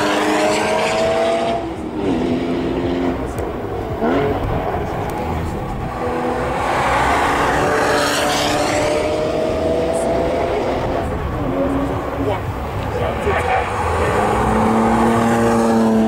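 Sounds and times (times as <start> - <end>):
race cars accelerating past: 0.0 - 16.0.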